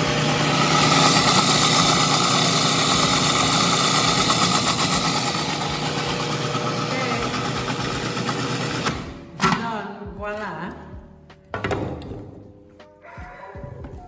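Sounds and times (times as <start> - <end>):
food processor running: 0.0 - 9.2.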